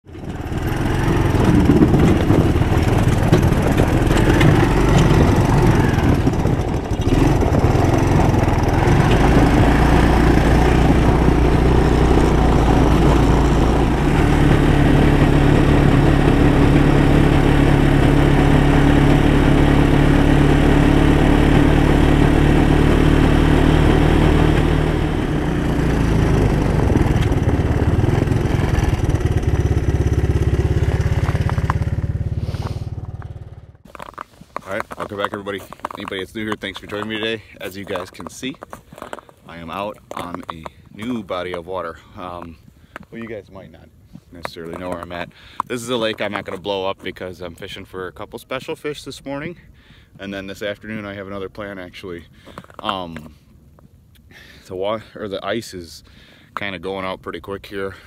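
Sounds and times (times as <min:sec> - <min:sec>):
off-road engine running: 0:00.0 - 0:43.4.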